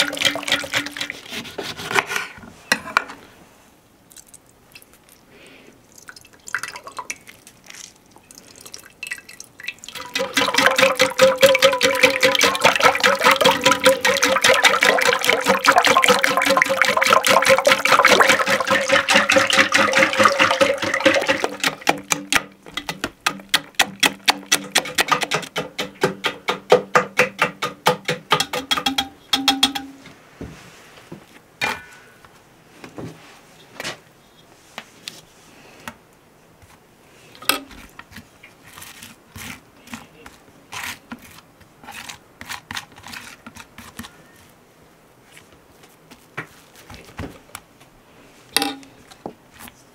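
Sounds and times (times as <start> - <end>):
metal whisk clinking in pot: 10.0 - 22.3.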